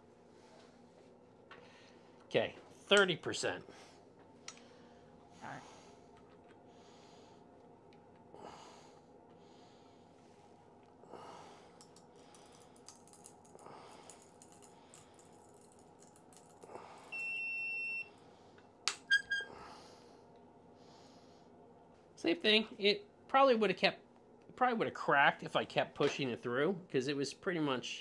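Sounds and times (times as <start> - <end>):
soft breaths: 0.0 - 2.9, 3.6 - 15.7, 16.5 - 17.3, 19.4 - 22.1.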